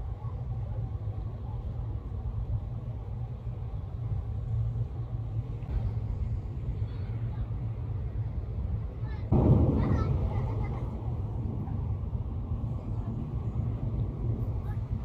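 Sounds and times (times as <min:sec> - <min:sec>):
ship engines droning: 0:00.0 - 0:15.0.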